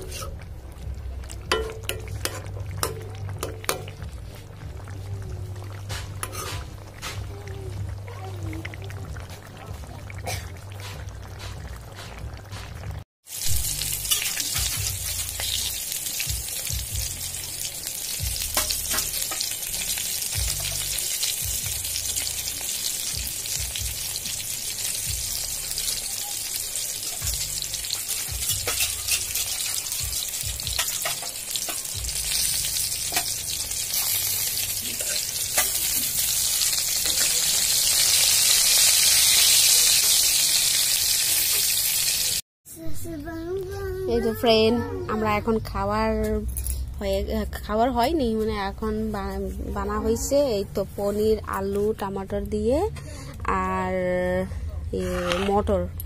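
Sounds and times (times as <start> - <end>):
eggplant sizzling in oil: 0.0 - 42.4.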